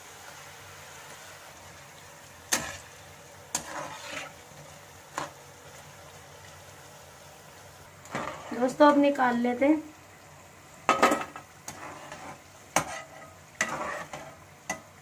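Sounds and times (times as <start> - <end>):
snacks deep-frying in oil: 0.0 - 15.0
spatula scraping pan: 2.5 - 5.4, 8.0 - 8.8, 10.9 - 14.9.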